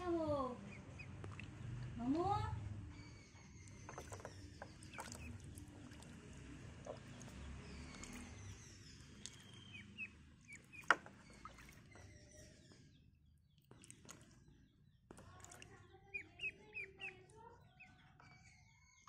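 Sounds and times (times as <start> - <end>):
ducklings splashing in water: 0.0 - 19.0
water dripping: 0.7 - 2.7, 3.6 - 12.3, 13.6 - 18.2
high duckling chirps: 15.5 - 19.0.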